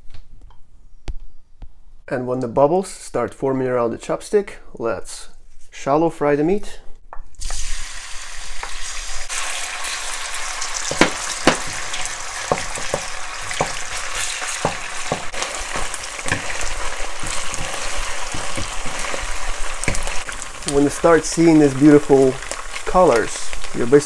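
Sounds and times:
meat sizzling in oil: 0:07.4 - 0:24.0
wooden spatulas knocking pan: 0:10.8 - 0:20.2.

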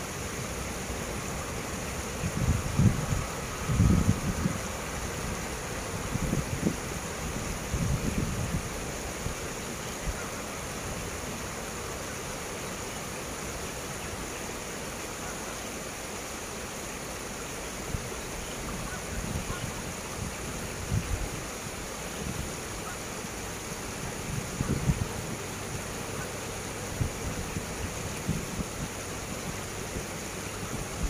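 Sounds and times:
freight train rumble: 0:00.0 - 0:14.4
wind buffeting microphone: 0:02.0 - 0:09.4, 0:22.2 - 0:31.0.

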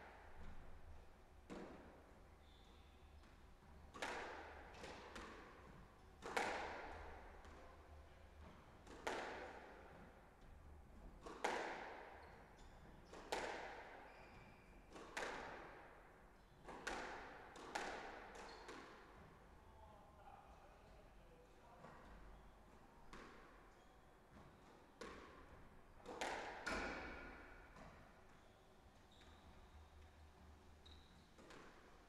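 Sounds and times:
squash ball hits echoing: 0:03.9 - 0:05.6, 0:06.2 - 0:07.6, 0:08.8 - 0:09.7, 0:11.2 - 0:12.2, 0:13.1 - 0:14.0, 0:14.9 - 0:15.8, 0:16.6 - 0:19.0, 0:25.0 - 0:25.4, 0:26.0 - 0:28.0.

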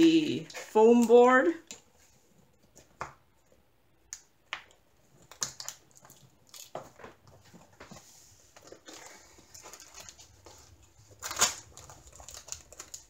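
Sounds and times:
plastic sheet crinkling and tapping: 0:04.2 - 0:13.0.

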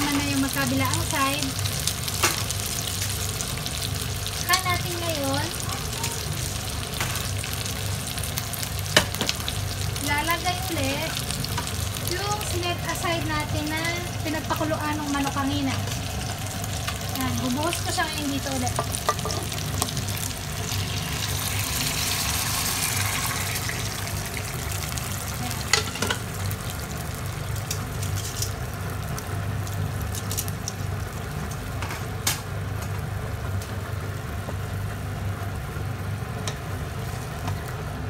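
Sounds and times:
broth hissing in hot pan: 0:00.0 - 0:31.5
low steady hum: 0:00.0 - 0:38.0
bubbling simmer: 0:11.2 - 0:28.0.

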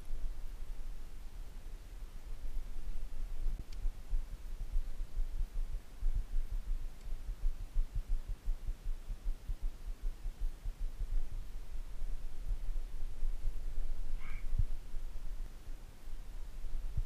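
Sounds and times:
wind buffeting microphone: 0:10.4 - 0:17.0.

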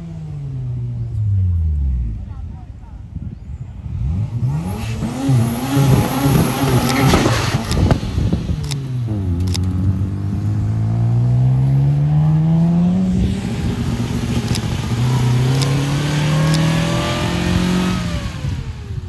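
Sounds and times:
sports car engine accelerating: 0:03.8 - 0:19.0.

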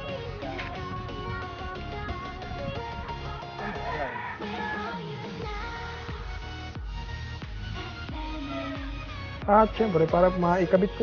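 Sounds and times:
background music with melody: 0:00.0 - 0:11.0.

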